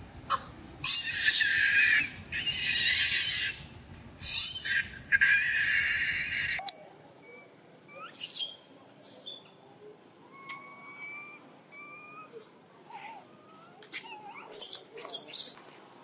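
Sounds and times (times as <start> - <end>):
baby monkey screaming: 0.8 - 6.7, 7.9 - 9.4, 10.4 - 15.6
thin whistling whimpers: 10.3 - 15.6.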